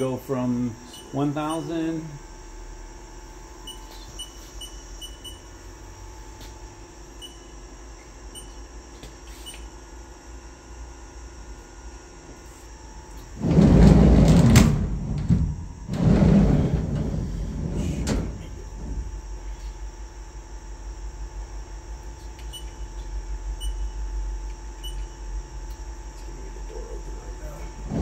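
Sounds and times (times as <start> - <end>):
machine low hum: 0.0 - 28.0
sliding enclosure door: 13.2 - 19.2, 27.8 - 28.0.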